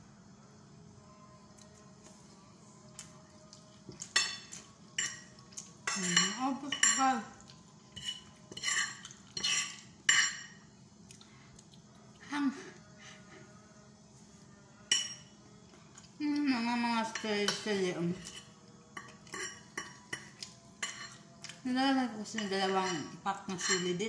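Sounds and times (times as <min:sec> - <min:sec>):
cutlery scraping on a ceramic plate: 0:03.9 - 0:07.1, 0:07.9 - 0:10.6, 0:17.1 - 0:21.6, 0:22.3 - 0:24.0.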